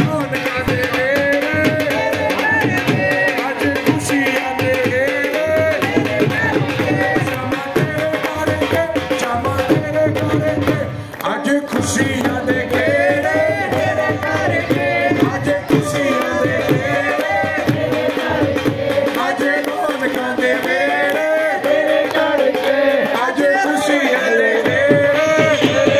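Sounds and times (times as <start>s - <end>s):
crowd clapping along: 0.0s - 25.9s
person singing through a microphone: 0.0s - 25.9s
rhythmic drumming: 0.0s - 25.9s.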